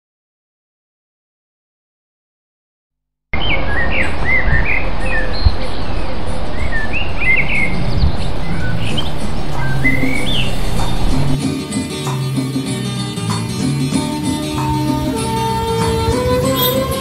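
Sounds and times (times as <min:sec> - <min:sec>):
birds chirping: 0:03.4 - 0:11.4, 0:14.4 - 0:17.0
street traffic rumble: 0:03.5 - 0:11.4, 0:13.2 - 0:17.0
bus approaching: 0:03.7 - 0:11.4, 0:14.5 - 0:17.0
motorbikes approaching: 0:04.6 - 0:11.4, 0:13.6 - 0:17.0.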